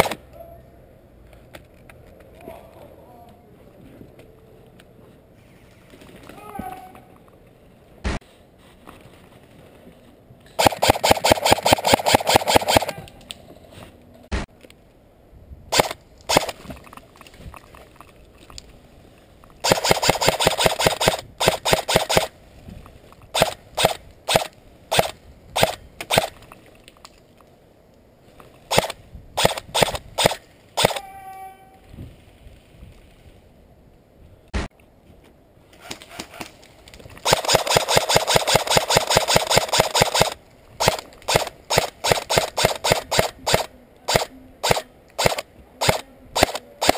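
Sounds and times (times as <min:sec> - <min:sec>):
airsoft rifle firing: 0:00.0 - 0:00.2, 0:10.6 - 0:13.1, 0:15.7 - 0:16.6, 0:19.6 - 0:22.3, 0:23.3 - 0:26.4, 0:28.7 - 0:31.0, 0:37.2 - 0:46.9.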